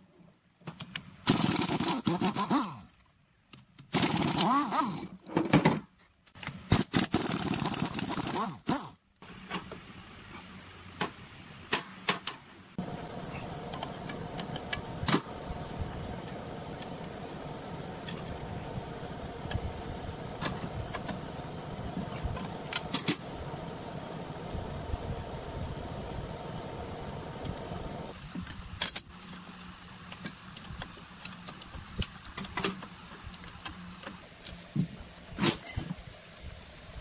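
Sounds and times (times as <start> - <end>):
steady mechanical hum: 6.2 - 37.0
metal tools clinking: 35.4 - 36.1.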